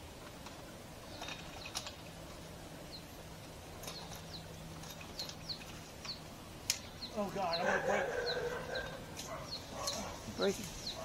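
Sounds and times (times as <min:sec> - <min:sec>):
bird chirping: 0:01.0 - 0:02.1, 0:02.7 - 0:11.0.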